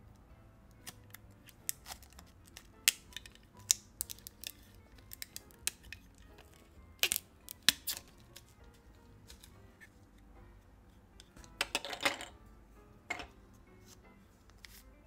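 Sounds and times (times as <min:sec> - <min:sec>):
plastic film peeling crackles: 0:00.7 - 0:09.6
plastic parts clicking: 0:00.7 - 0:09.6.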